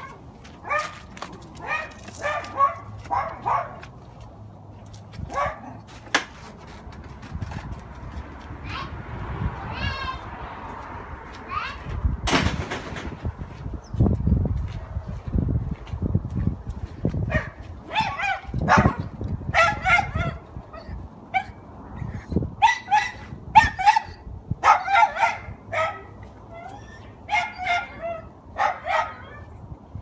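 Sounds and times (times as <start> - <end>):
dog barking: 1.6 - 3.8, 5.3 - 5.8, 17.3 - 20.4, 22.6 - 26.2, 27.3 - 29.5.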